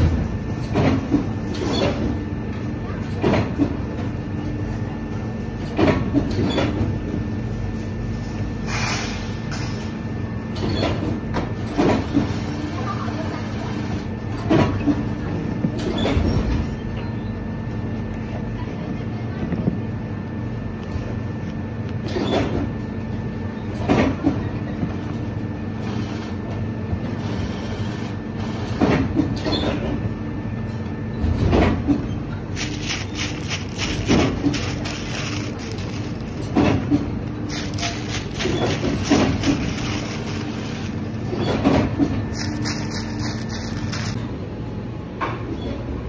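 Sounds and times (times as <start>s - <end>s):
machinery hum: 32.1s - 45.0s.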